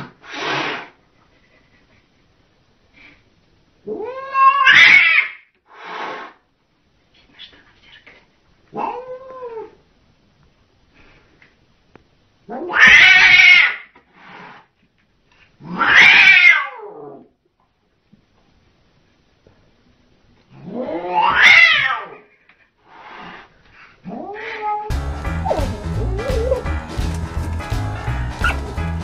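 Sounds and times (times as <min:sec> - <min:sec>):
cat yowling: 0:03.9 - 0:05.4, 0:08.8 - 0:09.8, 0:12.5 - 0:13.9, 0:15.7 - 0:17.2, 0:20.6 - 0:22.2.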